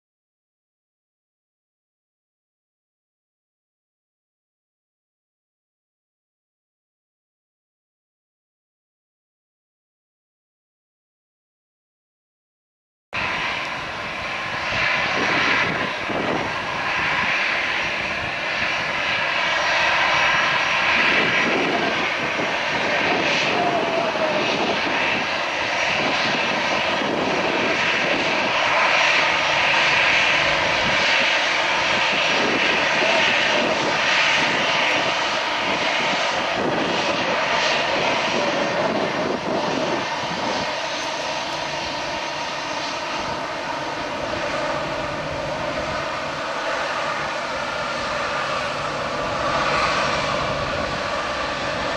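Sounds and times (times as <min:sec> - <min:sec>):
jet engines at taxi power: 0:13.2 - 0:51.9.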